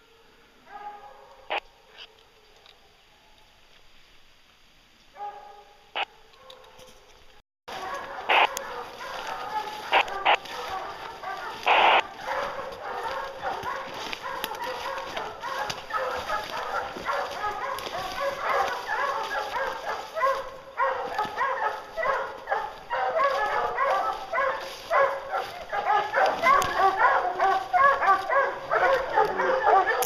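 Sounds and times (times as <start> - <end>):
hounds baying: 0.0 - 2.8, 7.7 - 30.0.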